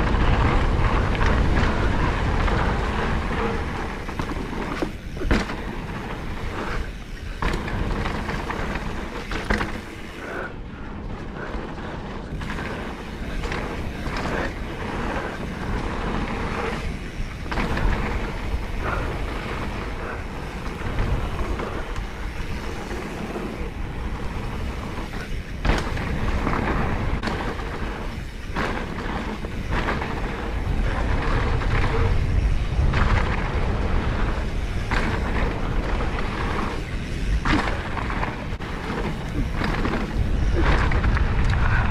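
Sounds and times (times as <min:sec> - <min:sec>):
bike rolling on dirt: 0:00.0 - 0:41.9
wind rush on microphone: 0:00.0 - 0:41.9
bike landing thumps: 0:03.4 - 0:10.0, 0:24.4 - 0:32.1.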